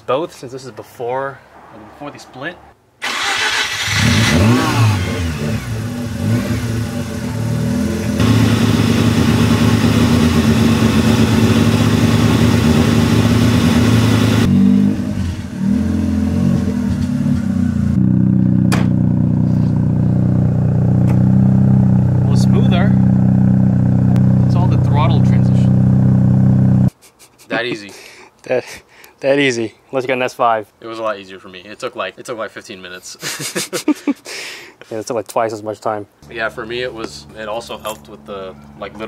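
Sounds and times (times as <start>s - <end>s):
rotary engine revving: 3.0s - 26.9s.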